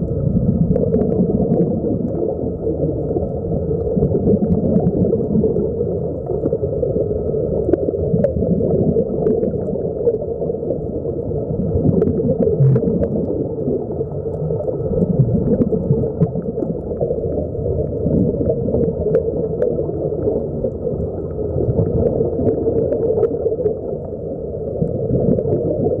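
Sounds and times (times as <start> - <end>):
air bubbles gurgling: 0.0 - 26.0
muffled underwater rumble: 0.0 - 26.0
faint clicks: 12.0 - 18.1.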